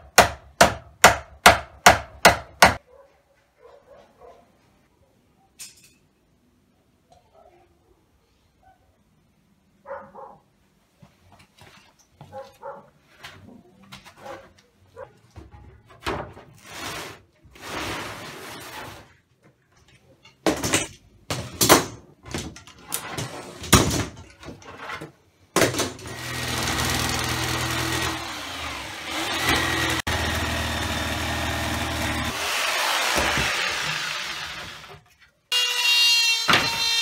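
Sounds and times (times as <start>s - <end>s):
electric jigsaw cutting wood: 26.0s - 37.0s.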